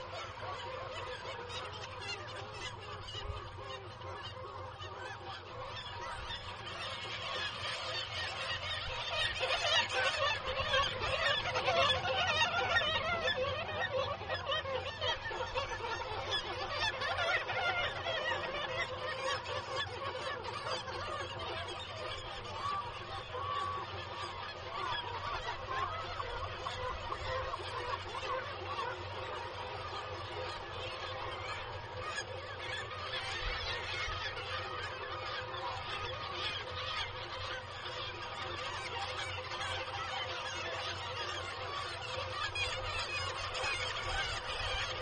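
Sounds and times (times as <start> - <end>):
seabird colony calling: 0.0 - 45.0.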